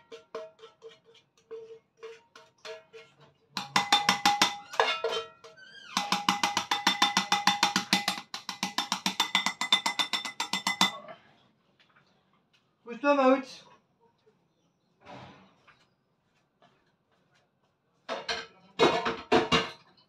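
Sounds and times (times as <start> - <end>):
spatula scraping frying pan: 0.0 - 10.9.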